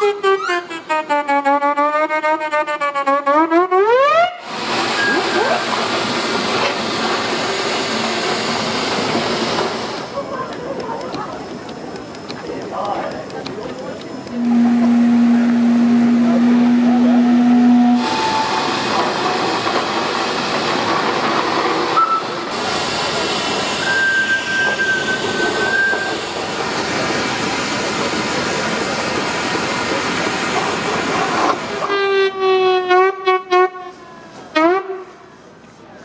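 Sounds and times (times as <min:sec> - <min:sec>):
steam whistles: 0:00.0 - 0:05.8, 0:14.3 - 0:19.0, 0:23.4 - 0:26.3
steam hissing: 0:04.4 - 0:31.9.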